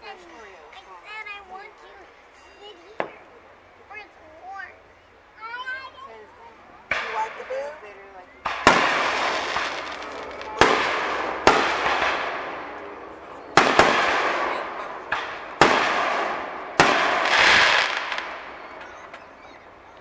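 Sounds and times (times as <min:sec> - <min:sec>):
echo of fireworks bangs: 0:06.9 - 0:20.0
fireworks shells bursting: 0:06.9 - 0:20.0.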